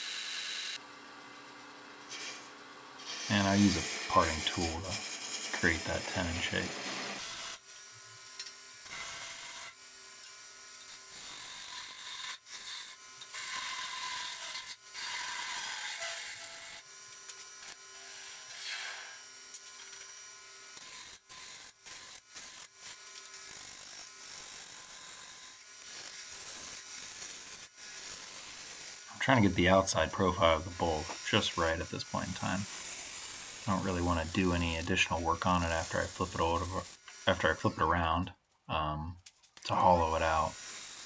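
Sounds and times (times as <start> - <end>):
lathe humming: 3.0 - 7.2.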